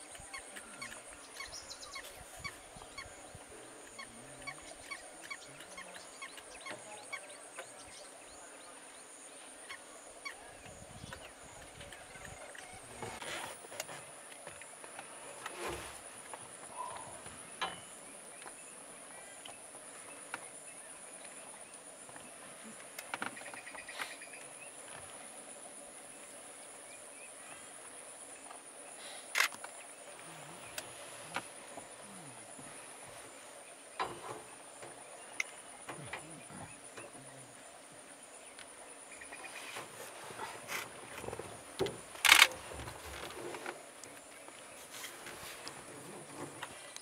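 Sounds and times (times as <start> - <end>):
insects chirring: 0.0 - 47.0
sharp clicks: 42.2 - 42.6.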